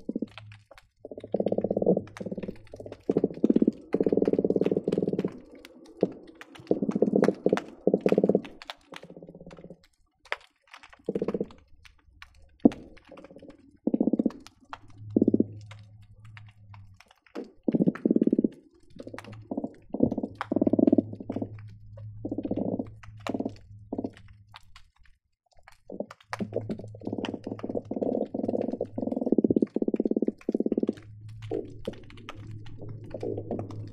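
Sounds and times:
fish calling underwater: 0:00.0 - 0:09.8
low underwater drone: 0:00.0 - 0:09.9, 0:11.1 - 0:25.0, 0:25.9 - 0:33.9.

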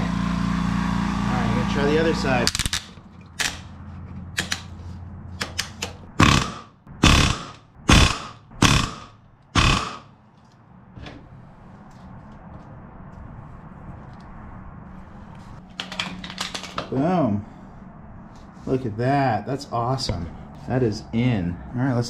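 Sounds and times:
pneumatic rivet gun hammering: 0:05.4 - 0:10.1.

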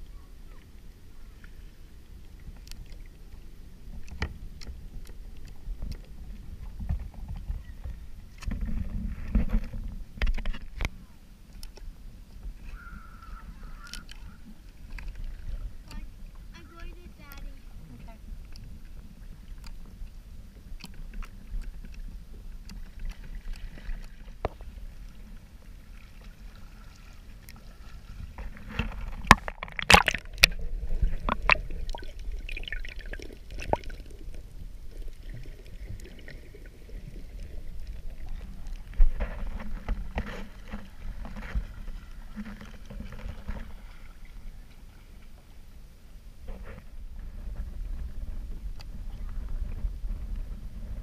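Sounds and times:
seawater sloshing and splashing: 0:12.5 - 0:45.8.

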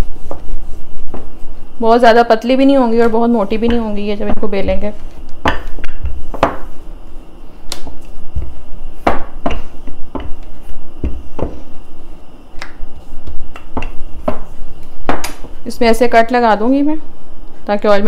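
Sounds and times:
rolling pin knocking on countertop: 0:03.0 - 0:04.7, 0:05.4 - 0:06.7, 0:08.4 - 0:11.6, 0:13.6 - 0:14.5, 0:15.1 - 0:15.5.

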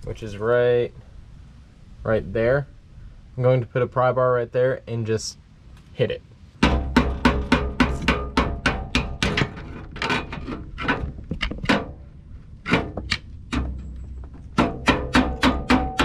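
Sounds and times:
hammer striking steel pry bar: 0:06.6 - 0:09.5, 0:14.6 - 0:16.0.

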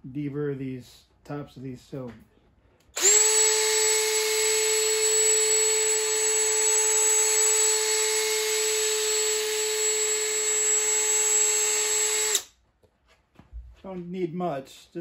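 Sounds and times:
cordless drill motor running: 0:03.0 - 0:12.5.

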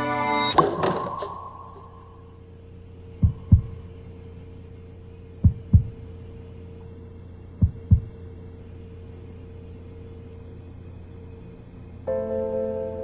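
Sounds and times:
steady low hum: 0:00.5 - 0:13.0
heartbeat double thumps: 0:03.2 - 0:03.8, 0:05.4 - 0:06.0, 0:07.6 - 0:08.2.

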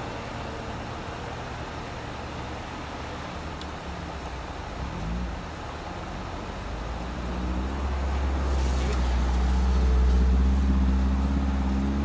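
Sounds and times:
engine running under load: 0:04.4 - 0:12.0.

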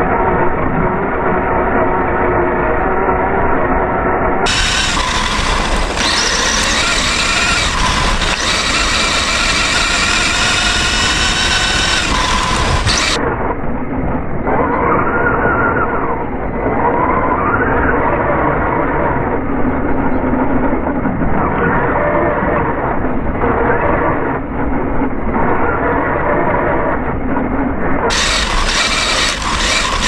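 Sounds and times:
electric motor whining: 0:04.5 - 0:13.2, 0:28.1 - 0:30.0
rough rumble: 0:04.5 - 0:13.2.

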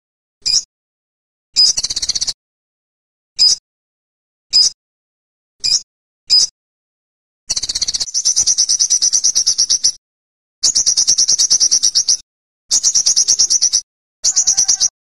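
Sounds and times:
bird singing high trills: 0:10.6 - 0:15.0.

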